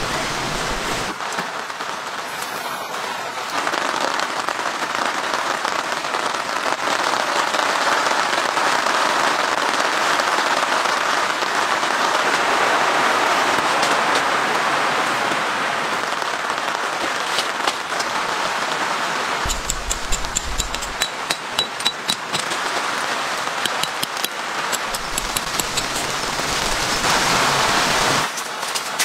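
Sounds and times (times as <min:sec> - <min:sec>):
steady rain: 0:00.0 - 0:29.0
tent stake hammered into gravel: 0:19.5 - 0:22.6, 0:23.6 - 0:26.3.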